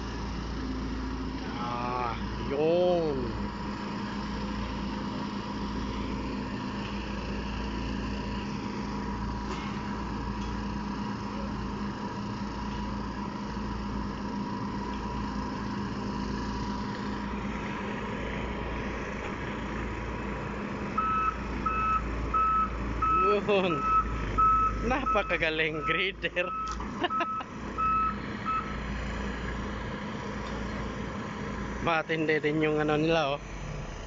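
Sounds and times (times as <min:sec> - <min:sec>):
excavator diesel engine running: 0:00.0 - 0:34.0
travel alarm beeping: 0:21.0 - 0:28.7.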